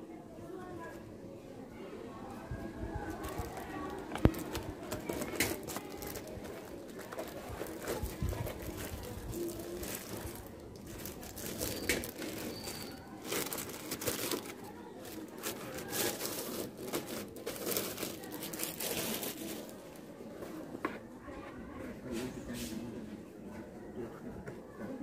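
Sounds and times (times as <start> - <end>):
plastic film crinkling: 3.1 - 19.9.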